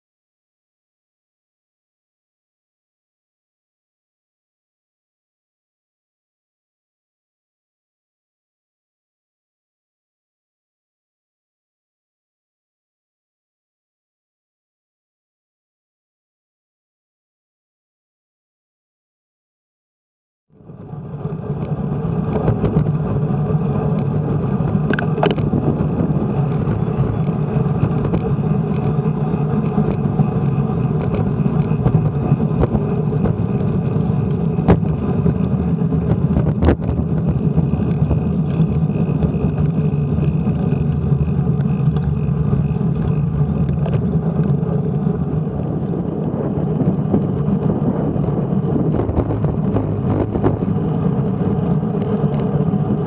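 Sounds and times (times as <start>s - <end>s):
wind and road noise: 20.6s - 53.0s.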